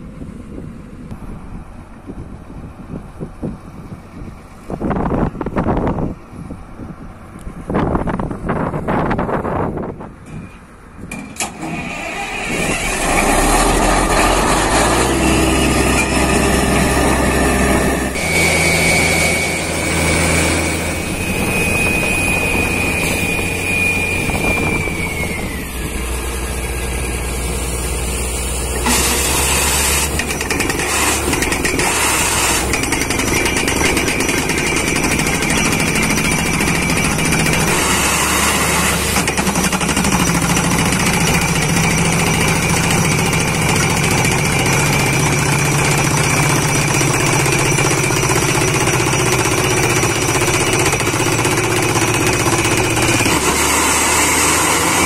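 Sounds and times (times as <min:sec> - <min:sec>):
drilling rig and compressor running: 0:00.0 - 0:55.0
high whine sliding down: 0:11.1 - 0:55.0.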